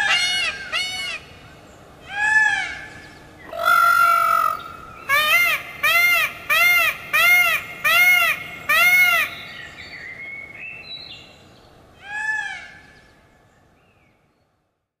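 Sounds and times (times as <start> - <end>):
peacock honking calls: 3.5 - 9.4.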